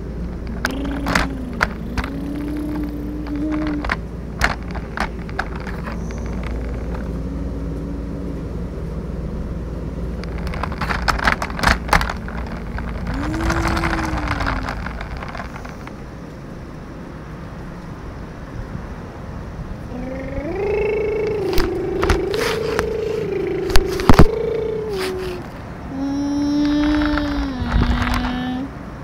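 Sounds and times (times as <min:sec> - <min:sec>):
wheels clattering: 0:00.0 - 0:08.5, 0:10.1 - 0:16.5
wheels rumbling over asphalt: 0:00.0 - 0:29.0
wavering tones: 0:00.6 - 0:04.0, 0:19.9 - 0:26.1.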